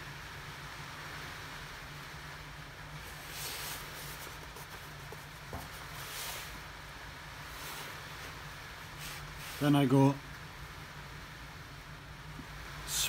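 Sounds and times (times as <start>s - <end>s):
steady low hum and hiss: 0.0s - 13.0s
rustling of hands handling parts: 3.0s - 6.8s, 7.4s - 9.8s.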